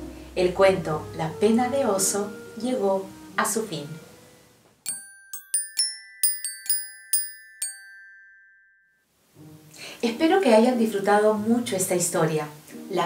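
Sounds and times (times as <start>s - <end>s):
bell-like glockenspiel notes: 4.9s - 9.1s.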